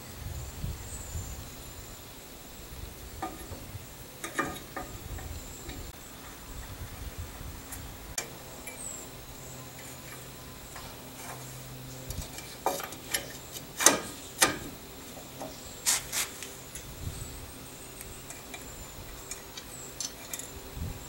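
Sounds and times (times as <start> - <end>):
ringing metal knocks: 3.2 - 5.9
metal tools clinking: 8.2 - 16.9, 18.1 - 20.7.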